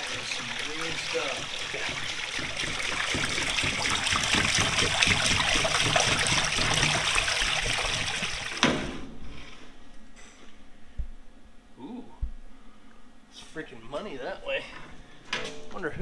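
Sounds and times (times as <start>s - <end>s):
hose water splashing into tray: 0.0s - 9.0s.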